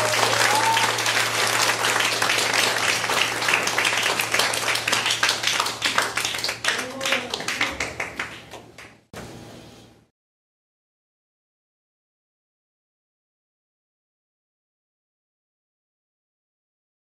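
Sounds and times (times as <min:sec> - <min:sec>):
steady low hum: 0:00.0 - 0:07.0
audience applauding: 0:00.0 - 0:09.0.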